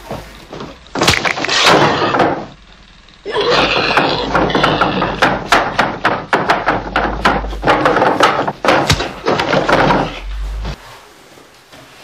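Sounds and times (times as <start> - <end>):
thuds and knocks on floor: 4.3 - 10.2.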